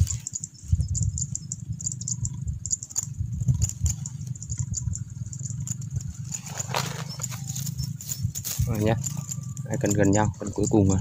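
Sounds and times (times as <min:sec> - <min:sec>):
wind rumbling on microphone: 0:00.0 - 0:11.0
handling crinkles and clicks: 0:02.8 - 0:10.9.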